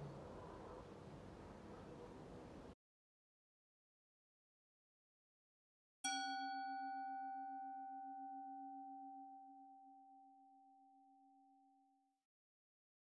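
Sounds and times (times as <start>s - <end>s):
singing bowl ringing: 6.0s - 11.4s.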